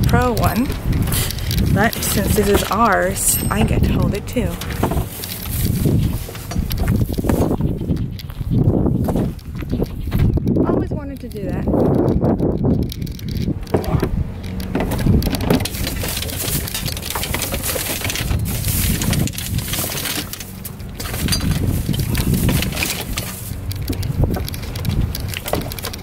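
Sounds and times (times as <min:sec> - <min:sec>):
steady low rumble: 0:00.0 - 0:26.0
household items knocking and clattering: 0:13.7 - 0:26.0.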